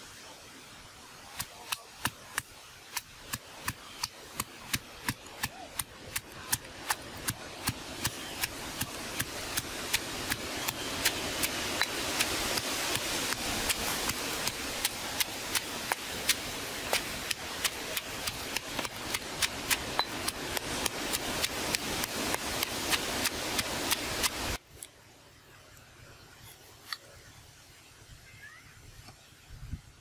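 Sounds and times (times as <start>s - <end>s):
steady hiss: 0.0s - 30.0s
pestle pounding in stone mortar: 1.7s - 24.4s.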